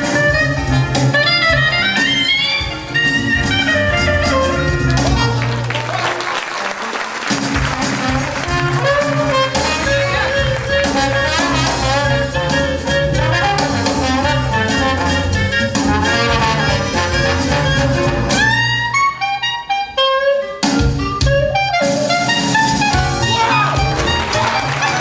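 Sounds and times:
jazz music with horns: 0.0 - 25.0.

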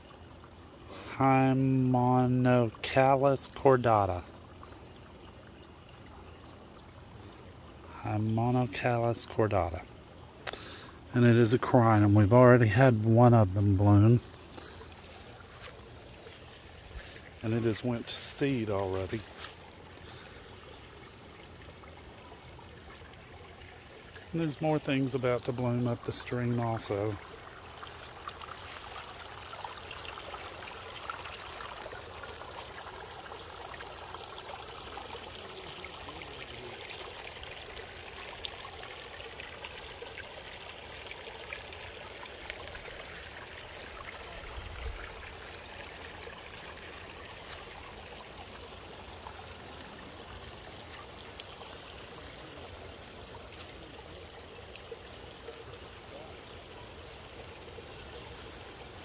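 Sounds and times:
stream trickling: 0.0 - 59.0.

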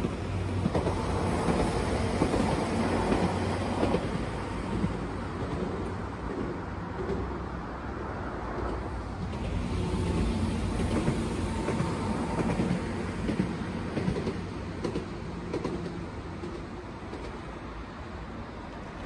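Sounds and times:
tram running past: 0.0 - 19.0
wheels clicking on track: 8.5 - 17.6.

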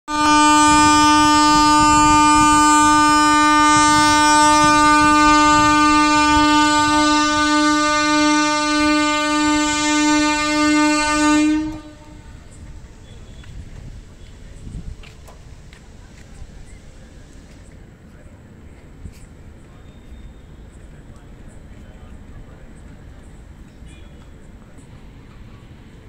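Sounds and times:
train horn blast: 0.1 - 13.7.

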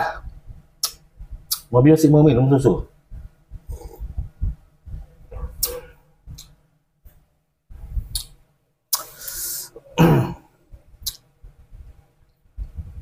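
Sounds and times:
man coughing: 9.9 - 10.5.

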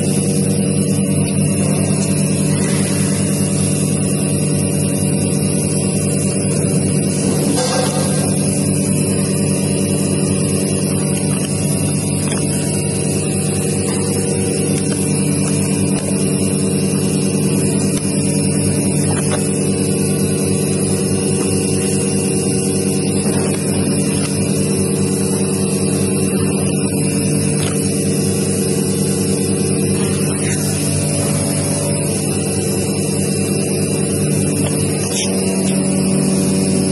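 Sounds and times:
packing machine humming: 0.0 - 36.9
machine hiss: 1.6 - 25.6.

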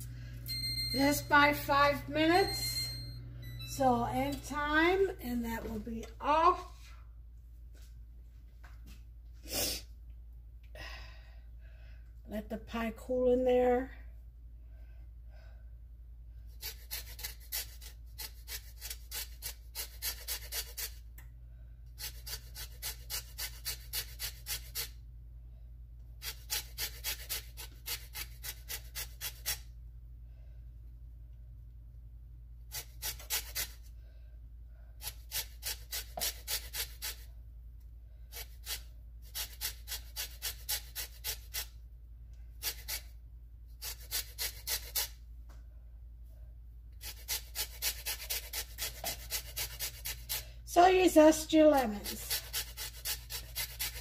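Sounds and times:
zester scraping peel: 16.6 - 21.0, 22.0 - 25.0, 32.7 - 33.8, 35.0 - 37.2, 38.3 - 41.7, 42.6 - 43.1, 43.8 - 45.2, 47.0 - 50.5, 51.8 - 54.0.

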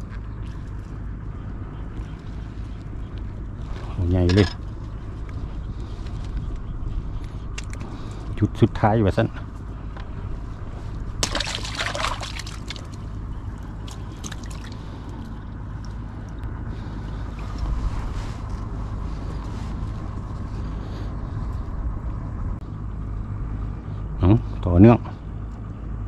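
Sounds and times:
low steady rumble: 0.0 - 26.0
water sloshing: 10.8 - 18.7
fish splashing in water: 11.2 - 16.4.

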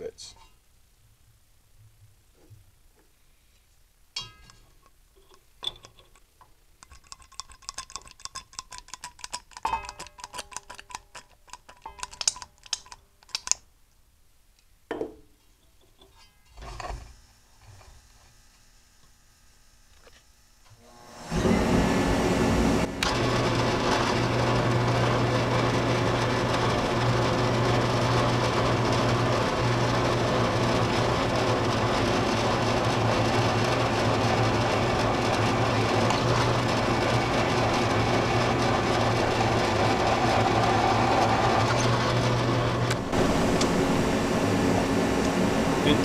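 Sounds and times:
drill press cutting steel: 21.0 - 46.0.

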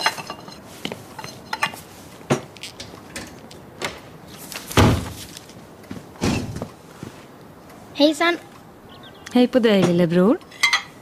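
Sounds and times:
heavy thump: 4.8 - 5.3.

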